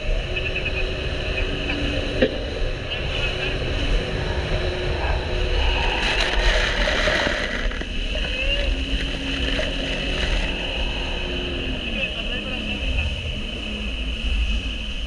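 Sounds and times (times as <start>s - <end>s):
jet ski engine: 5.0s - 14.6s.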